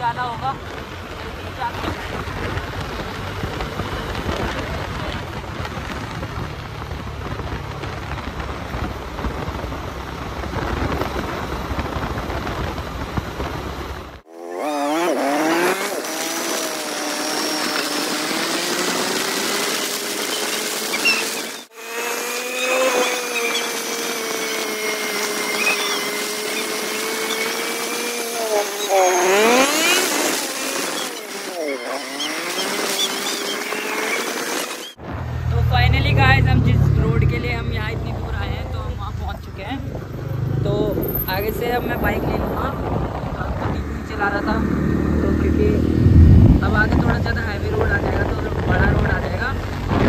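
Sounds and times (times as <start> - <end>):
motorcycle engine accelerating: 0.0 - 50.0
wind buffeting microphone: 35.0 - 50.0.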